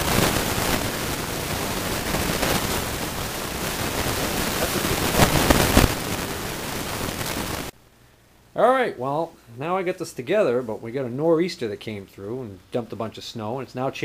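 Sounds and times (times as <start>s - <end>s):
loud rushing hiss: 0.0s - 7.7s.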